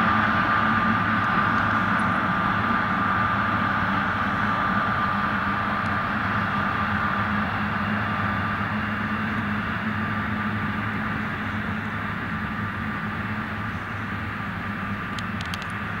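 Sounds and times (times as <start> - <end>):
jet engines idling whine: 0.0 - 16.0.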